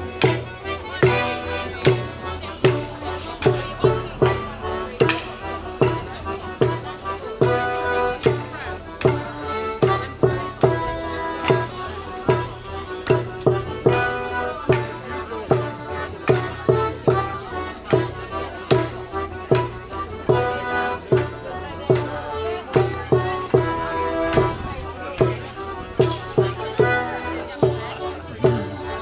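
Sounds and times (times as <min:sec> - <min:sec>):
sharp percussive strikes: 0:00.0 - 0:22.1
folk melody instrument: 0:00.0 - 0:29.0.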